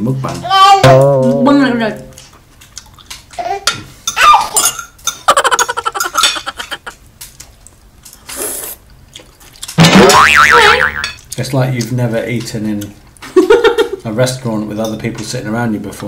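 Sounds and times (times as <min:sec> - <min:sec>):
chewing and mouth noises: 0:02.6 - 0:03.4, 0:07.2 - 0:09.8
cutlery clicking on plates: 0:04.6 - 0:07.5.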